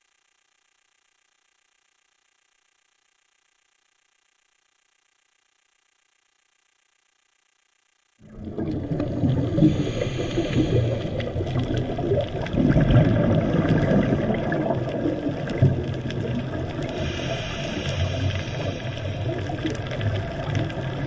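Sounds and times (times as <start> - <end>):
underwater rumbling rush: 8.2 - 21.0.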